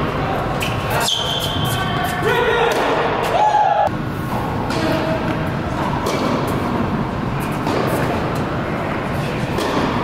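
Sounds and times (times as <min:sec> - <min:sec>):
rumbling indoor hall noise: 0:00.0 - 0:10.0.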